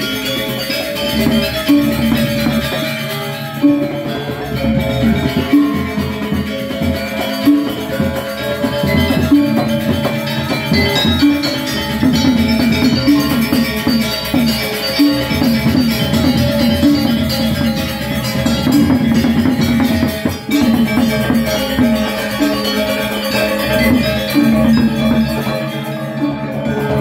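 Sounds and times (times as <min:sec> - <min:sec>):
gamelan metallophones ringing: 0:00.0 - 0:27.0.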